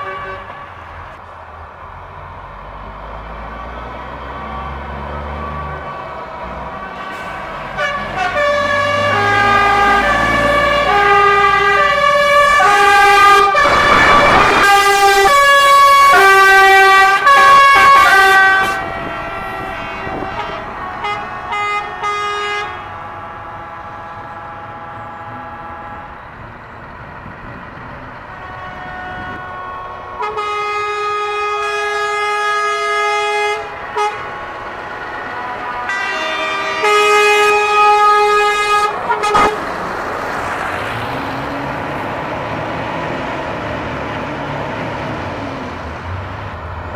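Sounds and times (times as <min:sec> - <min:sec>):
truck horns playing notes: 0:00.0 - 0:01.1, 0:03.4 - 0:41.5
burst of noise: 0:13.6 - 0:15.2.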